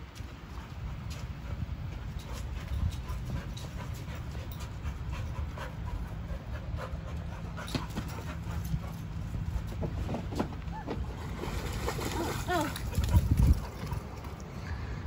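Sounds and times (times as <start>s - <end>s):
dog panting: 0.5s - 9.8s
wind rumble on microphone: 8.2s - 15.0s.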